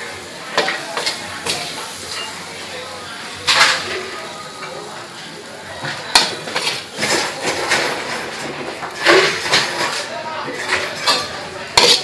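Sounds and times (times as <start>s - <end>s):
metal spatula clanking on wok: 9.0s - 12.0s.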